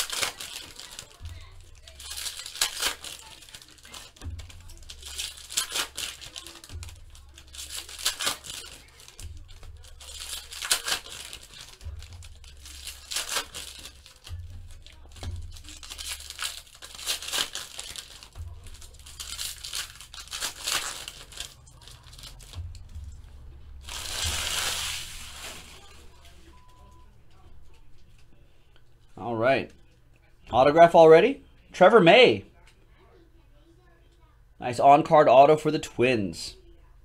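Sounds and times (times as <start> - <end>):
foil wrappers tearing and crinkling: 0.0 - 23.0, 23.8 - 26.4
quiet background music: 0.0 - 37.0.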